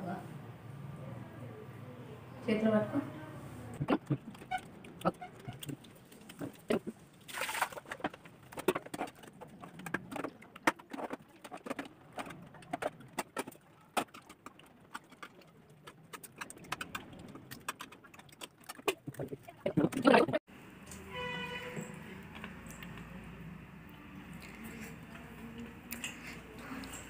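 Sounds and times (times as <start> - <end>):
chewing clicks and smacks: 25.6 - 27.0.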